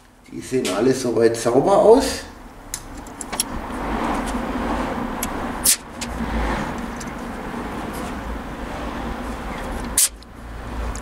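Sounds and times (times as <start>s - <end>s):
compressed air hissing: 5.6s - 5.9s, 9.4s - 10.2s.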